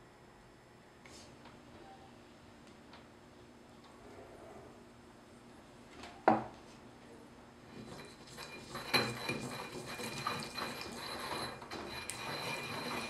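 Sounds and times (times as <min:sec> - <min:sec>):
pestle scraping ceramic mortar: 0:07.7 - 0:13.0.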